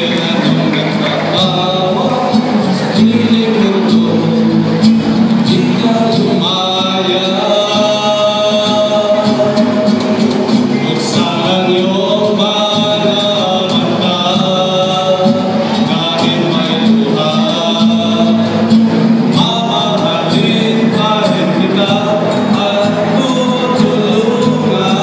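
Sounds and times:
acoustic guitar: 0.0s - 25.0s
keyboard: 0.0s - 25.0s
men singing in harmony: 0.0s - 25.0s.

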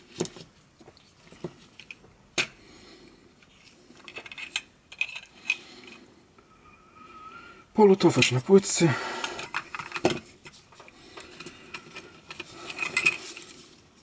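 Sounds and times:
plastic parts clicking and rattling: 3.4s - 6.0s, 9.2s - 13.8s.

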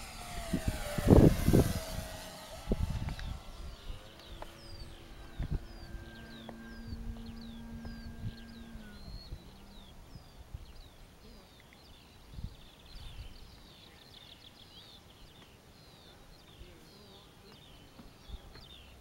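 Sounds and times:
electric motor hum: 0.0s - 10.9s
wind rumbling on microphone: 0.0s - 11.4s, 12.1s - 13.8s
small birds chirping: 0.0s - 19.0s.

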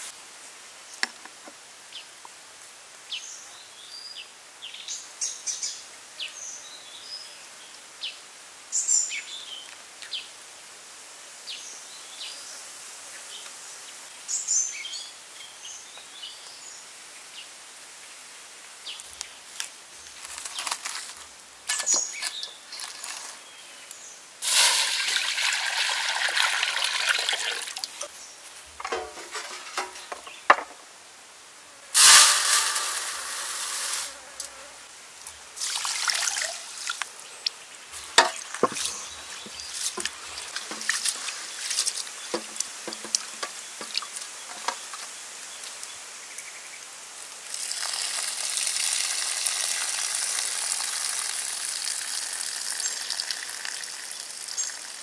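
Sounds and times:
water pouring into wok: 24.4s - 28.0s, 32.0s - 34.1s, 35.6s - 37.0s, 47.5s - 55.0s
water stream pouring off tray: 24.4s - 28.0s, 32.0s - 34.2s, 47.5s - 55.0s.

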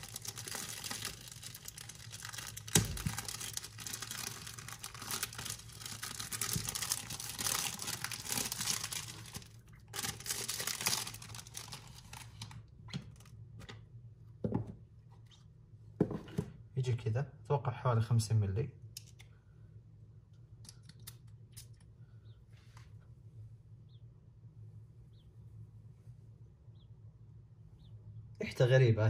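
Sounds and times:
cellophane crinkling: 0.0s - 13.3s.

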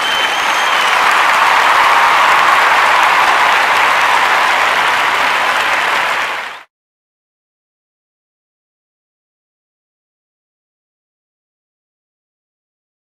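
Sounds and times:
short whistle: 0.0s - 1.1s
audience applauding: 0.0s - 6.7s.

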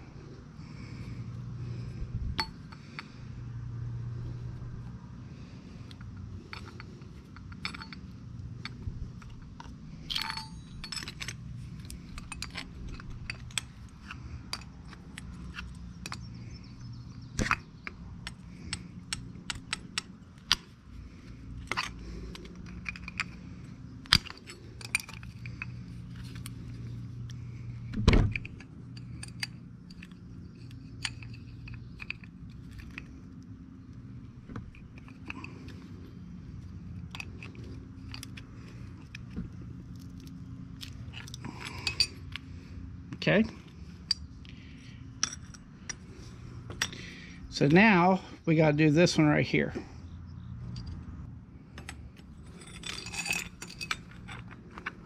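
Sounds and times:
low hum: 0.0s - 55.0s
metal tool clicks and clinks: 2.4s - 3.2s, 5.9s - 20.8s, 21.4s - 33.4s, 34.6s - 42.5s, 43.3s - 48.0s, 51.7s - 55.0s.

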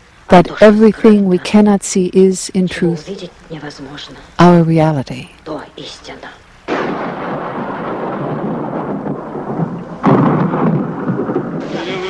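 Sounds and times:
heavy rain hissing: 5.8s - 12.0s
thunderclap rolling: 6.7s - 12.0s.

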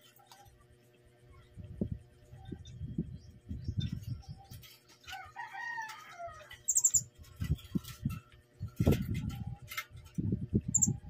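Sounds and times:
birds fluttering and bumping in cage: 0.0s - 11.0s
parrots squeaky calls: 6.6s - 7.1s, 10.7s - 10.9s.

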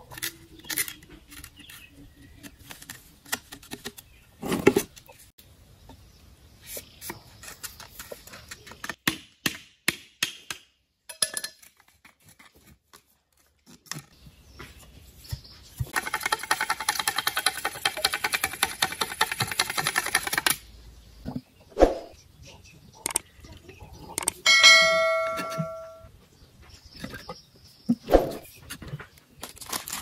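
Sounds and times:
fast clicks of bamboo: 15.9s - 20.7s, 23.0s - 23.3s.

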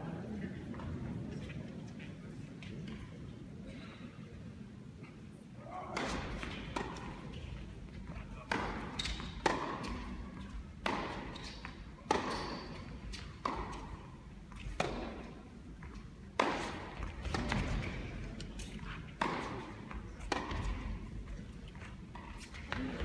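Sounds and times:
tennis racket hits echoing: 8.4s - 15.4s, 16.3s - 18.1s, 19.1s - 21.0s.

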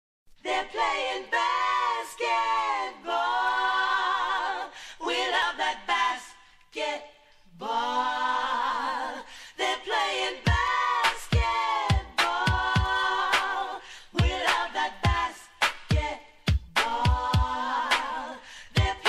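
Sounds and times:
person singing unaccompanied: 7.8s - 19.0s.

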